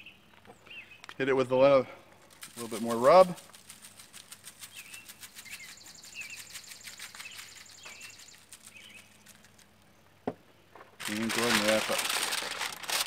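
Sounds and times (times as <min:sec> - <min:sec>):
bird chirping: 0:00.0 - 0:01.2, 0:03.9 - 0:10.7.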